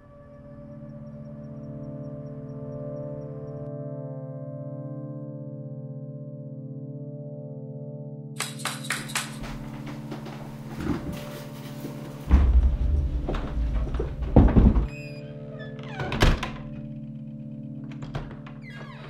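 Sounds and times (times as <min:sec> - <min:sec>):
background music: 0:00.0 - 0:19.0
door shutting: 0:08.4 - 0:16.9, 0:17.8 - 0:19.0
wheeled bag rumbling across floor: 0:09.5 - 0:14.9.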